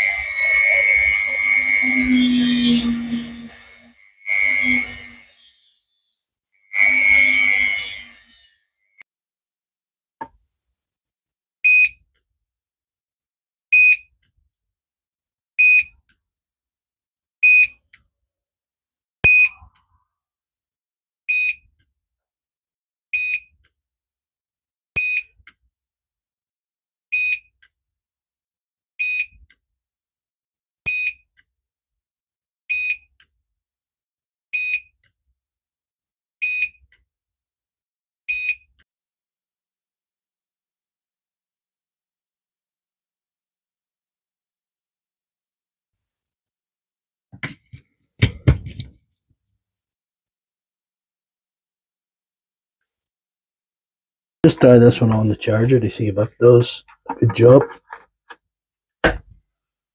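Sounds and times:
high-pitched electronic beeps: 0.0s - 6.0s, 6.7s - 8.6s.

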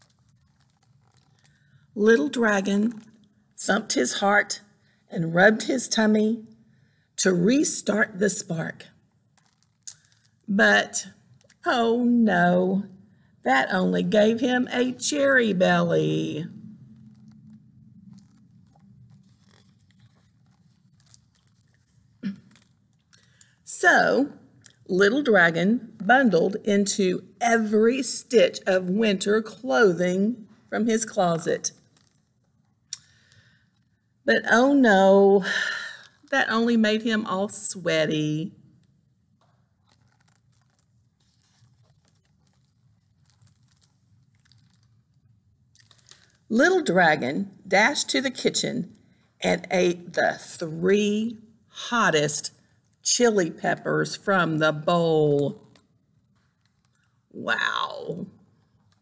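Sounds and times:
book pages rustling: 0.0s - 1.7s, 9.3s - 10.5s, 16.8s - 23.6s, 31.7s - 33.8s, 38.8s - 46.6s, 55.4s - 57.2s.

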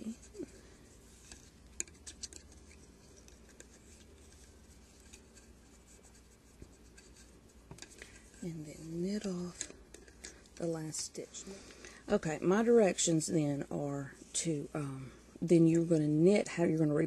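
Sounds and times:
loom hook scratching and clicking: 1.1s - 6.2s.

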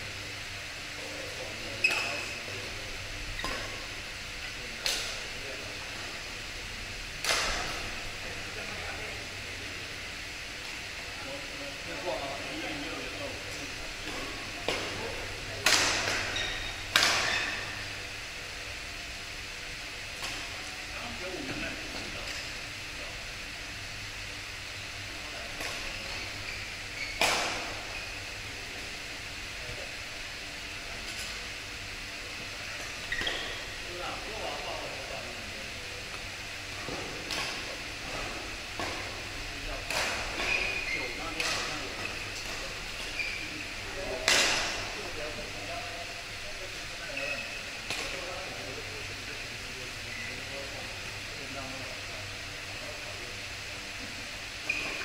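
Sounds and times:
hum of hall noise: 0.0s - 55.0s
racket hitting shuttlecock: 15.6s - 17.4s, 27.2s - 27.8s
racket striking shuttlecock: 16.9s - 17.3s.

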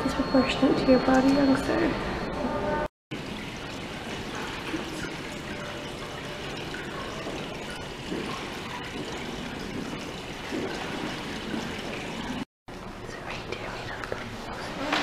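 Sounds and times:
water trickling onto pebbles: 3.1s - 12.4s.

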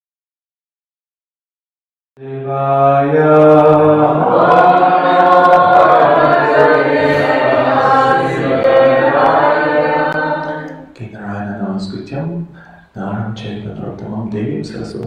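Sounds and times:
man chanting: 2.2s - 4.4s, 10.9s - 15.0s
group of voices chanting: 3.1s - 10.9s.

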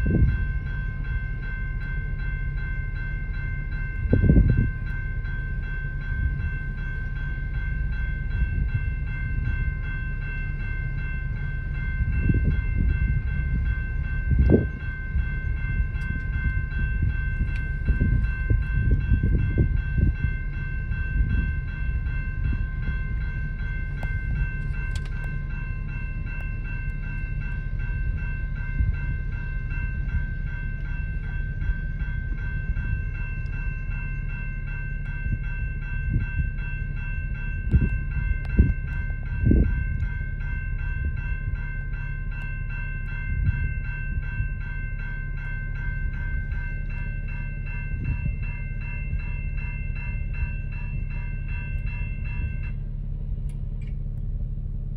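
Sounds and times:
crossing warning bell ringing: 0.0s - 54.9s
train cars clanking: 0.0s - 54.9s
train cars rumbling: 0.0s - 54.9s.

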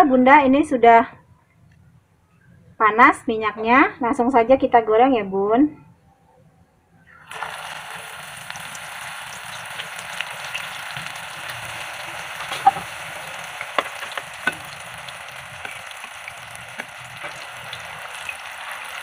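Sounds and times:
food deep-frying in hot oil: 7.1s - 19.0s
oil popping: 7.3s - 19.0s.

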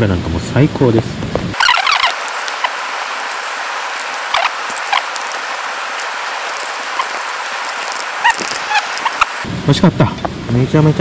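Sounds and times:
high chirps: 1.6s - 9.4s
stream water rushing: 1.6s - 9.5s.

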